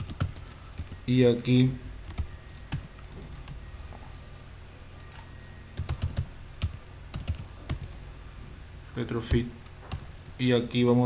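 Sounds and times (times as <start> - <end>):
keyboard typing: 0.0 - 1.1, 2.0 - 3.6, 5.0 - 8.1, 9.2 - 10.4.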